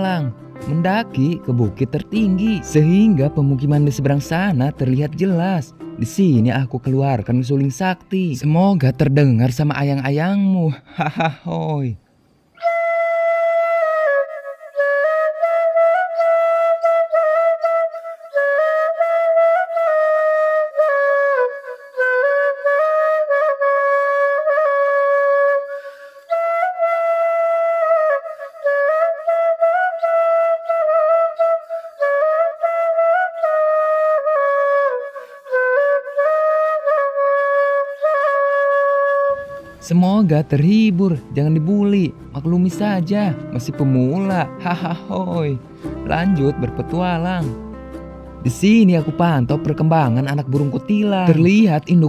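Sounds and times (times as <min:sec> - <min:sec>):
bamboo flute slow melody: 0:00.0 - 0:09.3, 0:12.6 - 0:52.0
breaths between phrases: 0:25.8 - 0:26.3.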